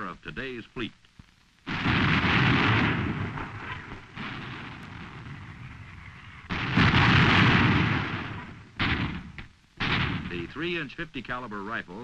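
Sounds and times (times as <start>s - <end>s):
heavy gun blasts: 1.7s - 10.8s.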